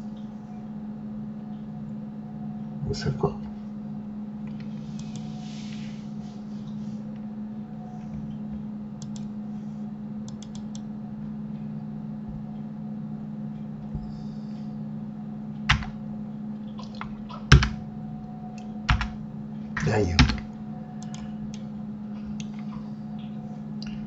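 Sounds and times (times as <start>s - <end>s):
low electrical hum: 0.0s - 24.0s
keyboard and mouse clicks: 9.0s - 9.3s, 10.3s - 10.9s, 20.2s - 21.6s.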